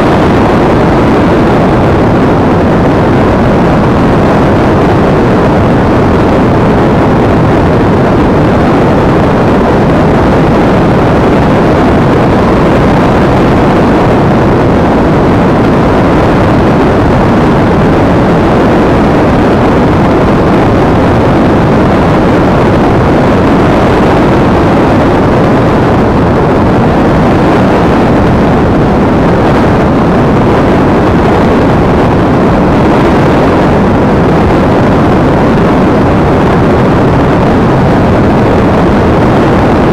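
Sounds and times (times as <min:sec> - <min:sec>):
wind rush: 0:00.0 - 0:39.9.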